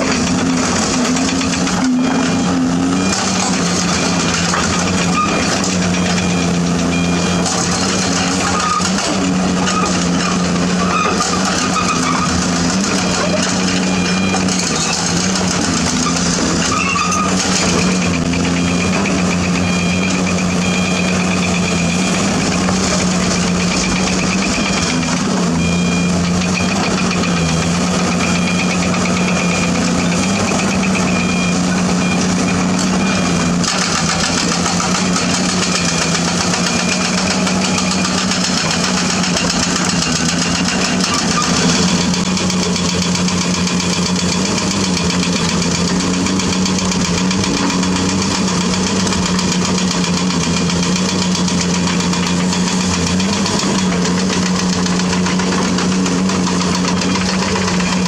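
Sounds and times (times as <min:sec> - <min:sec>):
excavator diesel engine running: 0:00.0 - 0:58.0
repeating high beep: 0:02.0 - 0:08.9, 0:12.9 - 0:42.1.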